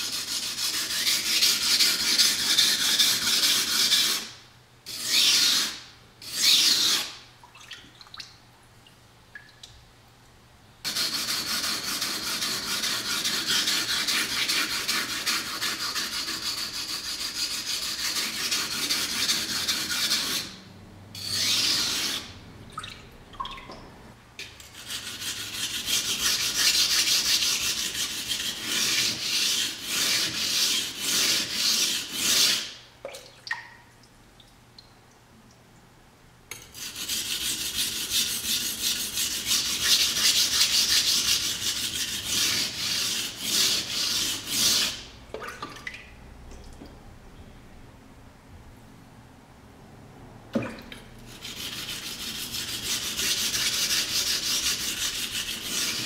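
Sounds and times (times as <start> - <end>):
knife scraping on whetstone: 51.3 - 56.0.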